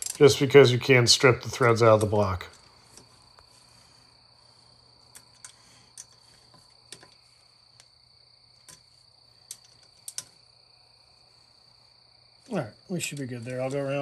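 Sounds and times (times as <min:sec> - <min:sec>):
ratchet wrench clicking: 0:00.0 - 0:00.4
high insect trill: 0:00.0 - 0:14.0.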